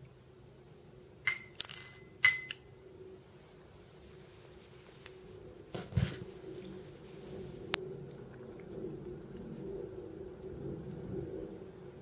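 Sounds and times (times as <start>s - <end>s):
metal button clinking in glass dish: 1.3s - 2.6s.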